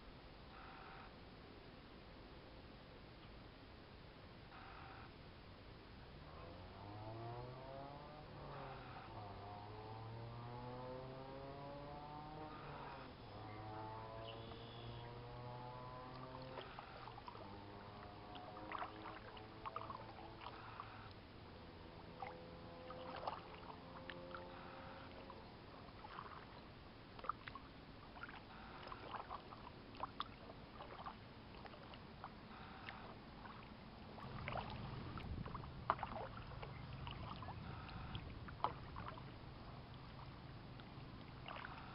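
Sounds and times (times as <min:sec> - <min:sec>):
distant motor droning: 0:04.4 - 0:41.9
paddle splashing water: 0:11.8 - 0:41.9.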